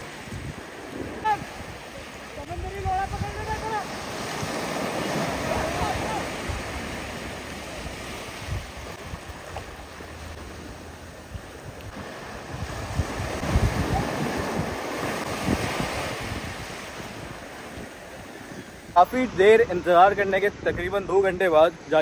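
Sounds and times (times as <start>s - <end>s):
wind rumbling on microphone: 0.0s - 21.5s
surf washing in shallow water: 0.0s - 22.0s
people splashing water: 3.5s - 11.1s.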